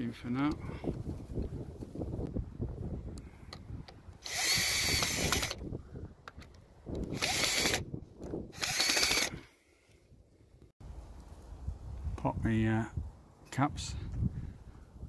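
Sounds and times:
drill driver motor whirring: 4.2 - 5.6, 7.0 - 7.9, 8.5 - 9.4.

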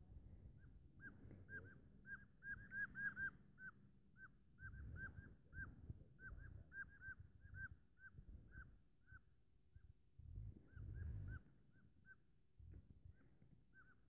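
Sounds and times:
bird calling in clipped notes: 1.0 - 8.2.

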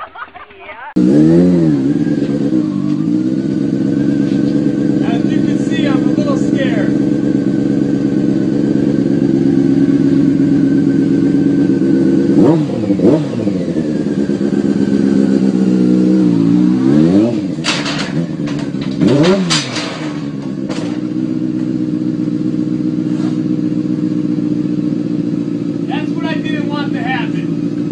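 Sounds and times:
motorcycle engine idling and revving: 0.9 - 27.9
motorcycle clattering on pavement: 2.0 - 13.0, 13.6 - 23.9.

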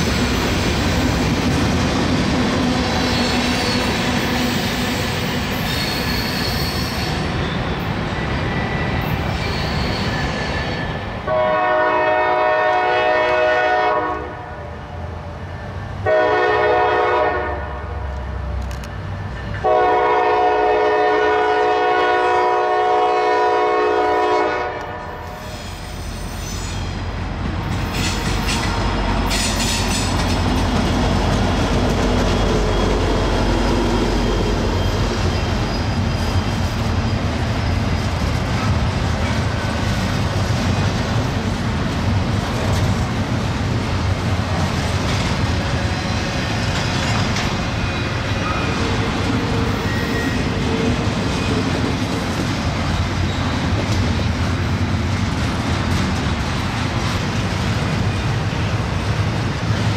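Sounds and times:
diesel locomotive engine rumble: 0.0 - 59.9
locomotive air horn: 11.3 - 14.6, 16.0 - 17.9, 19.6 - 25.6.

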